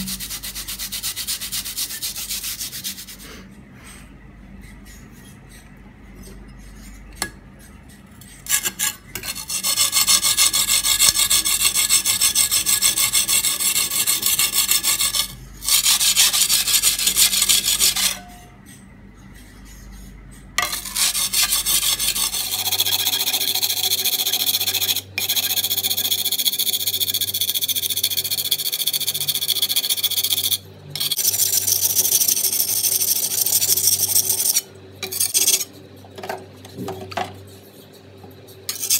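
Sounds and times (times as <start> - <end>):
blade grinding on whetstone: 8.2 - 18.5, 20.6 - 35.7, 38.7 - 38.9.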